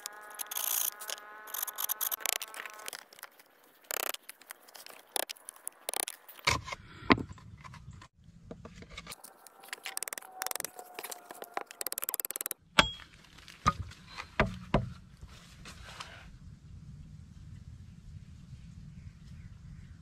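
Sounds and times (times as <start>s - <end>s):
machete chopping wood: 12.8s - 13.0s.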